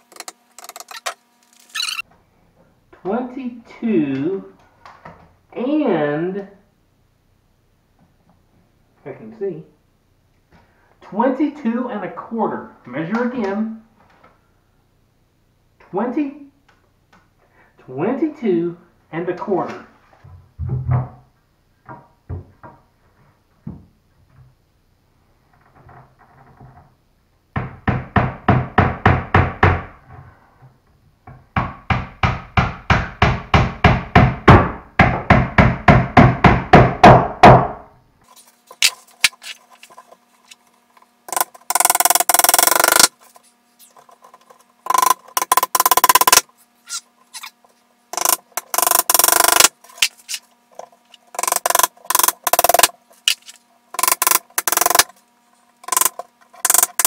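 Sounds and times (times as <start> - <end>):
hammer striking wood: 31.5 - 37.8, 41.3 - 43.1, 44.9 - 46.4, 51.4 - 53.4, 54.0 - 55.1
power tool bursts: 41.3 - 43.2, 48.2 - 50.1.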